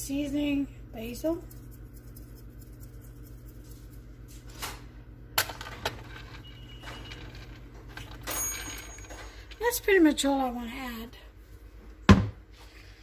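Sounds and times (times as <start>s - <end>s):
spice shaker taps over bowl: 1.4s - 4.0s.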